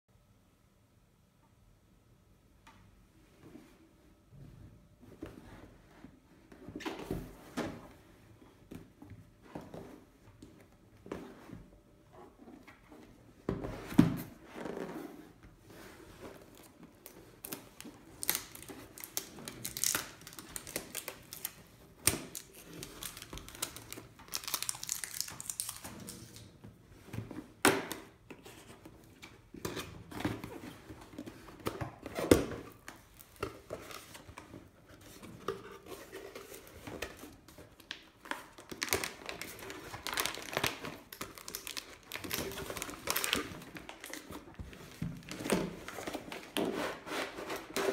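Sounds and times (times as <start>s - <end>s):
packaging tearing and rustling: 16.5s - 26.5s, 37.7s - 44.5s
plastic air-cushion wrap crinkling: 37.6s - 47.7s.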